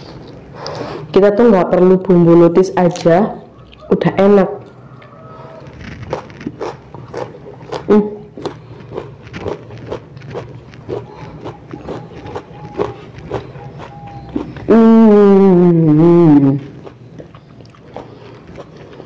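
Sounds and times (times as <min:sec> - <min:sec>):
wet crunchy chewing: 0:04.6 - 0:14.8, 0:16.5 - 0:19.0.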